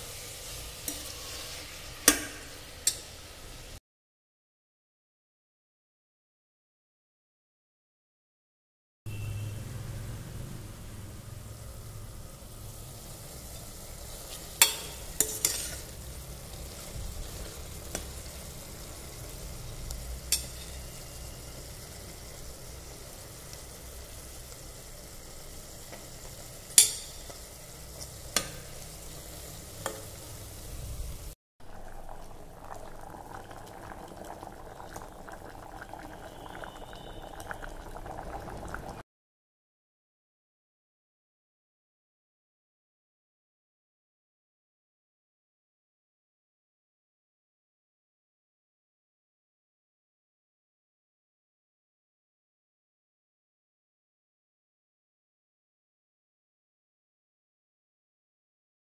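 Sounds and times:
food sizzling in a pot: 0.0s - 3.8s, 9.1s - 39.0s
mixture bubbling at the boil: 10.5s - 39.0s
spoon clinking against pot: 14.6s - 15.9s, 20.3s - 20.9s, 26.8s - 27.4s.

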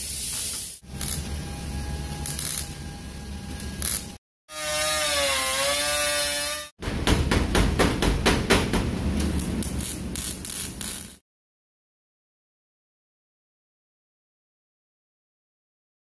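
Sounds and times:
welder crackling: 0.0s - 4.2s, 9.0s - 11.2s
grinder cutting steel: 0.8s - 6.7s.

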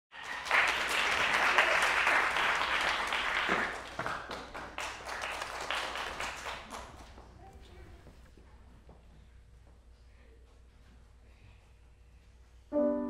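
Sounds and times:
audience applauding: 0.1s - 7.8s.

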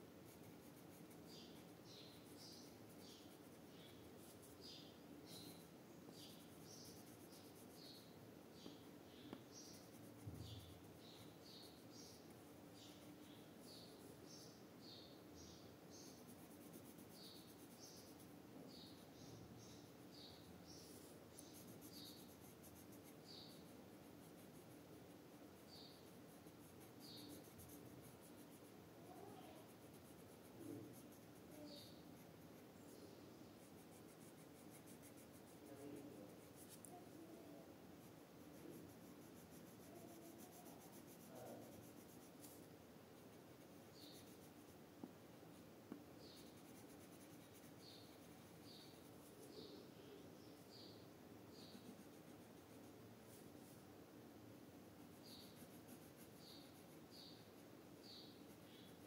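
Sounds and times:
pencil scratching on paper: 0.3s - 8.7s, 9.5s - 14.5s, 16.0s - 32.7s, 33.6s - 37.4s, 38.0s - 44.8s, 46.2s - 49.8s, 50.5s - 53.8s, 55.0s - 57.4s.

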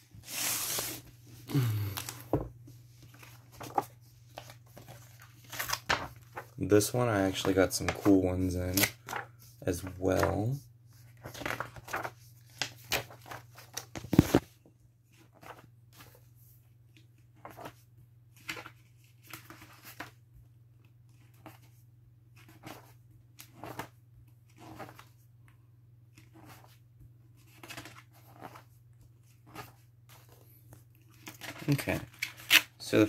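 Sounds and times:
book pages turning: 0.2s - 2.4s, 3.0s - 10.4s, 11.0s - 14.5s, 15.1s - 16.2s, 17.0s - 17.8s, 22.4s - 25.2s, 26.1s - 33.0s.

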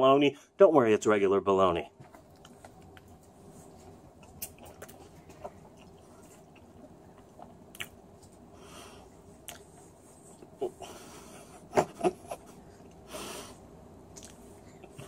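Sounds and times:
faint chewing: 2.0s - 10.9s, 14.1s - 15.0s
wet mouth clicks: 4.2s - 5.0s, 7.2s - 8.0s, 9.4s - 9.7s, 14.2s - 15.0s.

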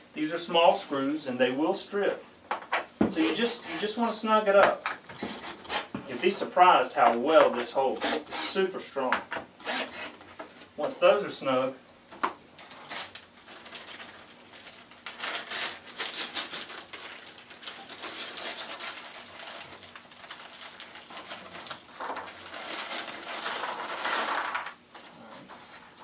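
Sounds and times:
plastic bag crinkling: 12.6s - 24.8s
screws clinking in bag: 15.2s - 19.8s, 22.5s - 24.6s.

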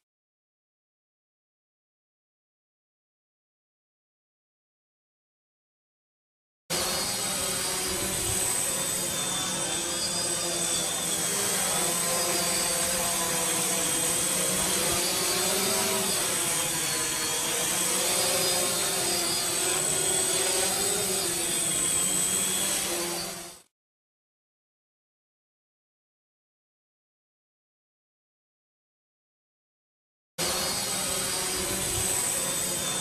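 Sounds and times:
drone propellers buzzing: 6.7s - 23.7s, 30.4s - 33.0s.

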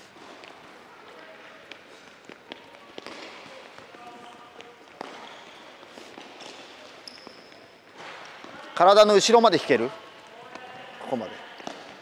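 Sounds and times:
ball taps on indoor court floor: 4.6s - 5.2s.

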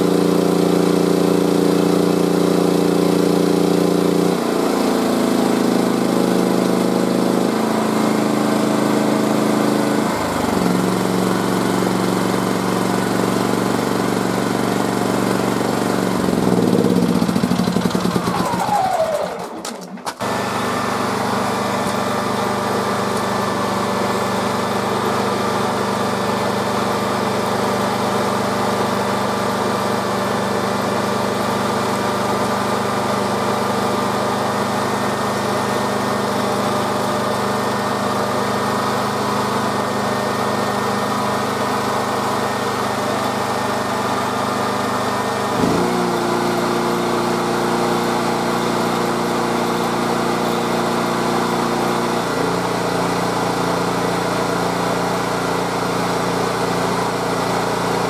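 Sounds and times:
generators running: 0.0s - 58.0s
falling whine: 16.5s - 20.3s.

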